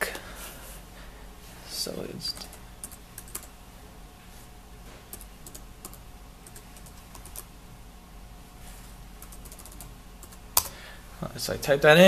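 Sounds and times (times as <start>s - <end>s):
laptop keyboard typing: 2.4s - 3.5s, 5.1s - 7.5s, 9.2s - 10.7s.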